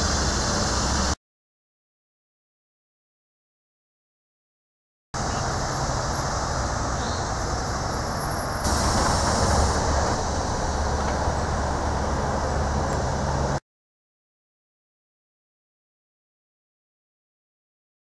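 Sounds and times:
outdoor rumbling hiss: 0:00.0 - 0:01.2, 0:05.2 - 0:13.6.

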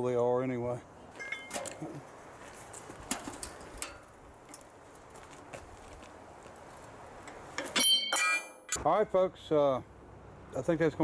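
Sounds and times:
loud ringing metal clank: 0:07.8 - 0:08.8.

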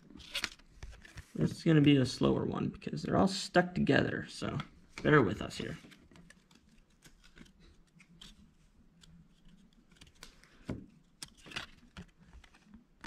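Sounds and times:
cards rustling and clicking: 0:00.1 - 0:02.0, 0:04.4 - 0:13.0.

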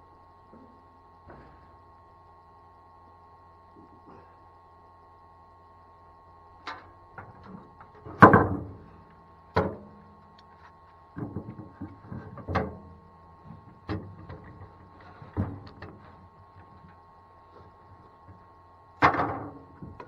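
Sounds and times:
wooden boards and clamps clattering: 0:07.2 - 0:08.9, 0:19.0 - 0:20.0.

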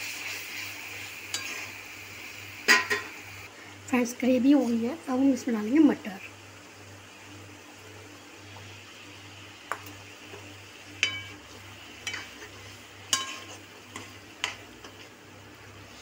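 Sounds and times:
metal spoon scraping metal pan: 0:12.0 - 0:15.1.

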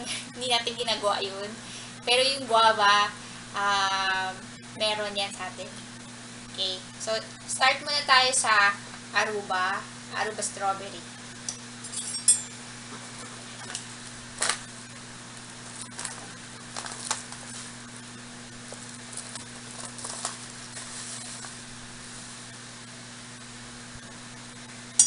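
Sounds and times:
plastic pouch crinkling: 0:15.7 - 0:18.0, 0:18.6 - 0:22.4.

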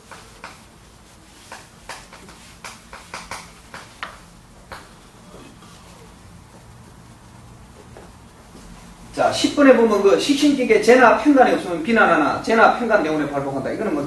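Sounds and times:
chalk tapping and scraping on chalkboard: 0:00.0 - 0:08.8.

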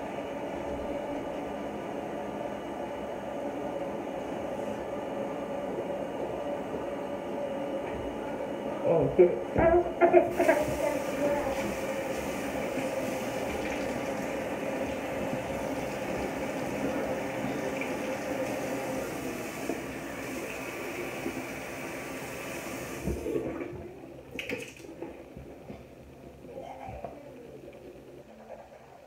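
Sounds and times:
sink tap running: 0:09.6 - 0:26.1.

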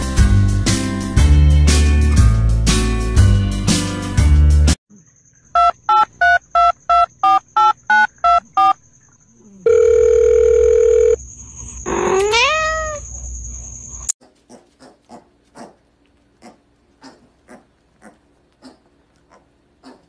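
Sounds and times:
steady phone tone: 0:09.6 - 0:11.2
telephone keypad dialing tones: 0:09.7 - 0:11.2
cat meowing: 0:11.9 - 0:13.0.

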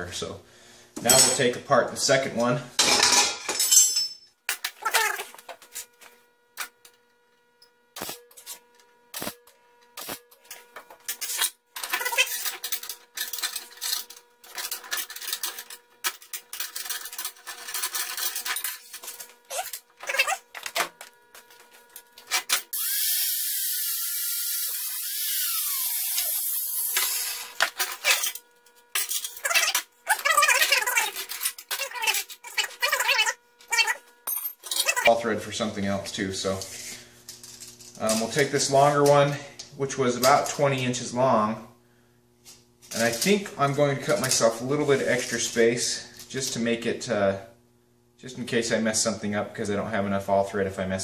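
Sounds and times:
steel parts clinking on workbench: 0:02.8 - 0:04.7.

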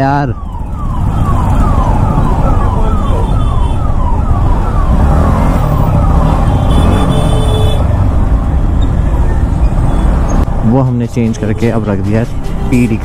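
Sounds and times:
siren in falling sweeps: 0:00.0 - 0:06.4.

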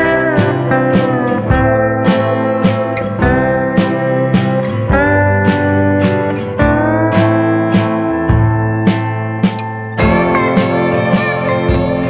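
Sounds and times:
string-like melody over a beat: 0:00.0 - 0:12.0.

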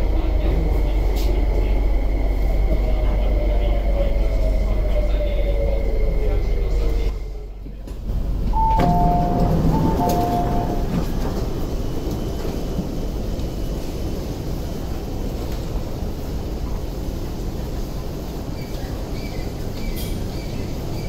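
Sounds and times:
metro train rumble: 0:00.0 - 0:21.0
two-tone electronic chime: 0:08.6 - 0:10.8.

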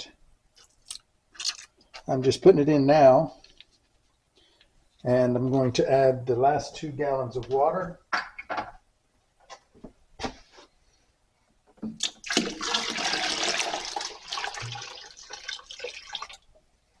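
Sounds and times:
water pouring into a pot: 0:12.0 - 0:16.5.

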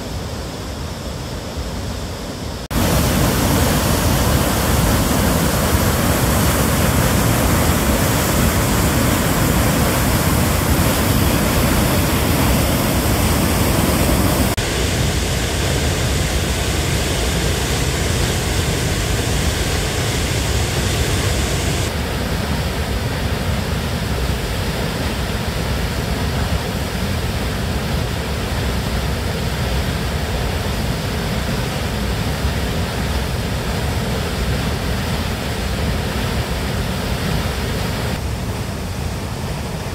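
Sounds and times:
waterfall rushing: 0:00.0 - 0:39.9.

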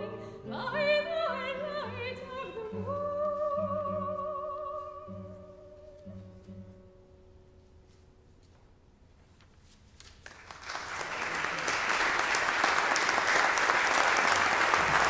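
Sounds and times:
audience applause: 0:10.2 - 0:15.0.

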